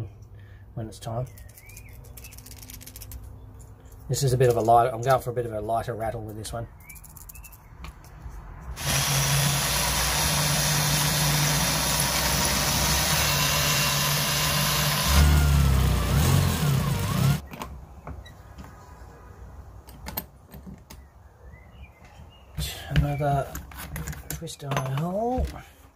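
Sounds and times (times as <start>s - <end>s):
electric drill drilling into wood: 8.8s - 17.4s.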